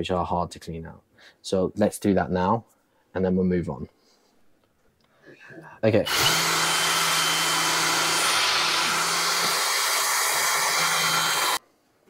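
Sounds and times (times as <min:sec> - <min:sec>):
cordless drill spinning brush: 0:06.1 - 0:11.6.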